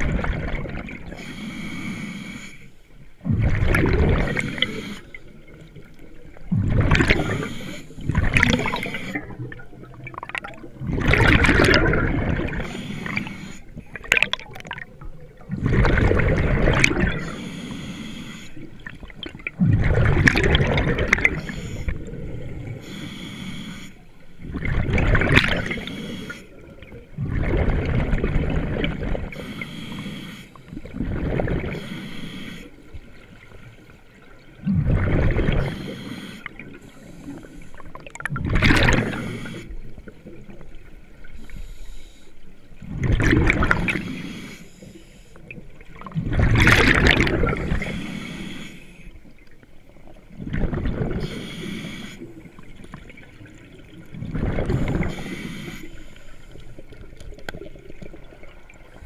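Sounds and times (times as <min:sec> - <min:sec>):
gurgling exhaled bubbles: 0:00.0 - 0:01.3, 0:03.2 - 0:17.4, 0:18.6 - 0:22.8, 0:24.4 - 0:29.4, 0:30.7 - 0:31.9, 0:34.4 - 0:40.9, 0:42.8 - 0:44.2, 0:45.5 - 0:48.2, 0:49.9 - 0:55.8
regulator hiss on inhale: 0:01.1 - 0:03.0, 0:04.3 - 0:05.3, 0:07.2 - 0:09.4, 0:12.6 - 0:13.8, 0:17.2 - 0:18.8, 0:21.3 - 0:24.4, 0:25.6 - 0:26.7, 0:29.3 - 0:30.9, 0:31.7 - 0:33.0, 0:35.6 - 0:37.9, 0:39.0 - 0:40.0, 0:41.3 - 0:42.6, 0:43.9 - 0:45.6, 0:47.7 - 0:49.3, 0:51.2 - 0:53.0, 0:54.7 - 0:57.2.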